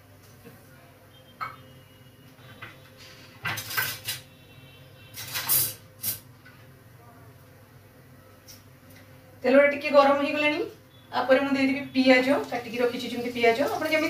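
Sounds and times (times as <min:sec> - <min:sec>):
dishes and utensils clattering: 0:03.4 - 0:04.2.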